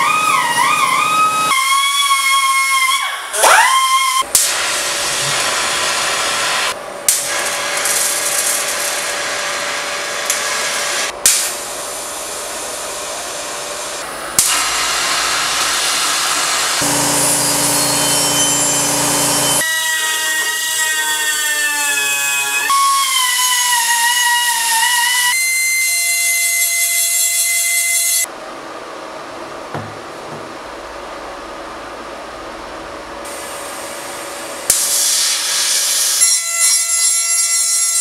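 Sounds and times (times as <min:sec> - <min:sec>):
small rotary grinder whining: 0:16.8 - 0:19.6.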